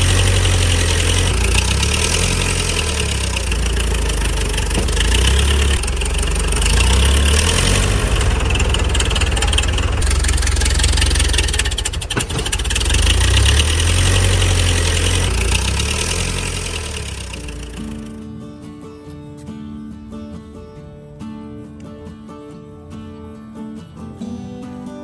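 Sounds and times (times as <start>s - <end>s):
tractor engine running: 0.0s - 18.3s.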